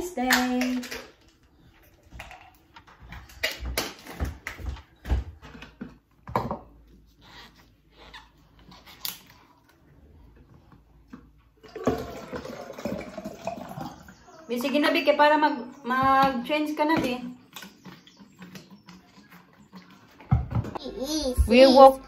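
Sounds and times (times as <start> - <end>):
plastic bottles clicking and knocking: 0.0 - 6.9, 10.7 - 15.0
water pouring into plastic bottle: 11.6 - 14.2.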